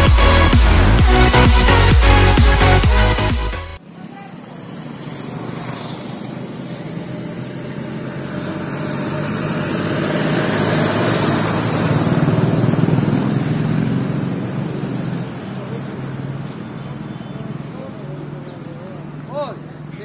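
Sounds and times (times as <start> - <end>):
vehicle engine passing by: 4.4 - 20.0.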